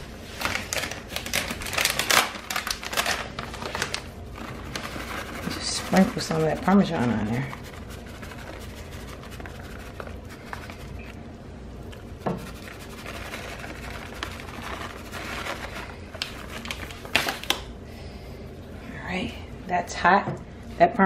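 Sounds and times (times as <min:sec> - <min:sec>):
kitchen scraping and rubbing: 0:04.4 - 0:11.2, 0:12.0 - 0:16.9.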